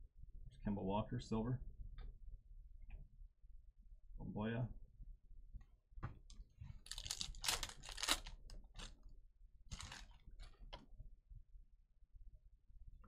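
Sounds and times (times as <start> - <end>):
foil wrapper crinkling: 6.8 - 9.0, 9.7 - 10.6.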